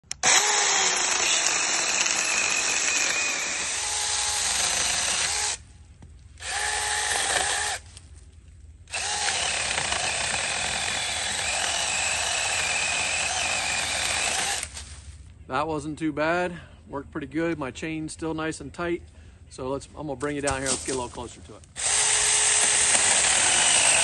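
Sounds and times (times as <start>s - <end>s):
electric chainsaw cutting wood: 0.1s - 5.6s, 6.4s - 7.8s, 8.9s - 14.7s, 21.8s - 24.0s.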